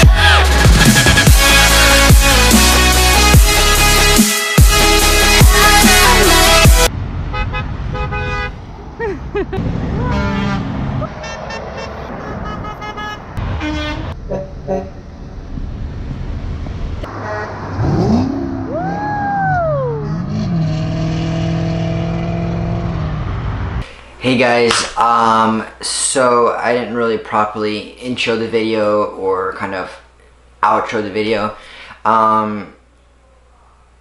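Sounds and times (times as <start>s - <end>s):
road traffic passing: 6.0s - 24.2s
car horns honking: 7.3s - 8.6s, 9.6s - 15.0s, 17.1s - 18.4s
rising and falling call: 18.2s - 20.2s.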